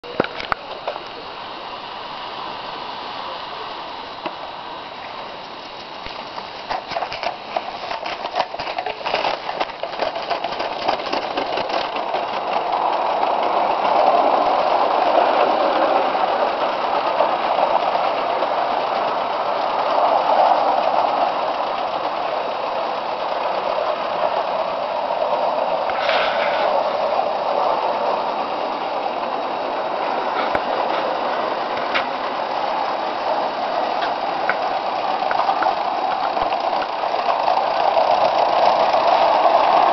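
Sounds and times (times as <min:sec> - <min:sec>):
steam locomotive running: 0:00.0 - 0:39.9
sharp clicks of wheels slipping: 0:05.8 - 0:14.4.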